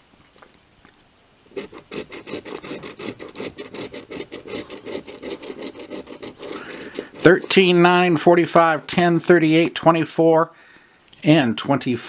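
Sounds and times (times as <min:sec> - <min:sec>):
coin scratching lottery ticket: 0:01.5 - 0:09.7.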